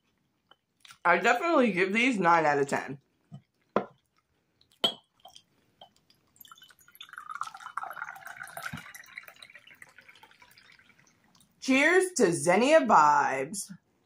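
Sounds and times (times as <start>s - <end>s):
liquid pouring into a glass: 3.6s - 11.6s.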